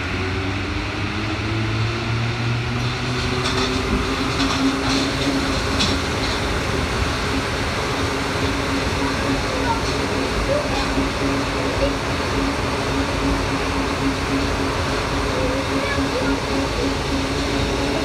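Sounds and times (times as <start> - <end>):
high steady whine: 0.0 - 18.0
metro train running: 0.0 - 18.0.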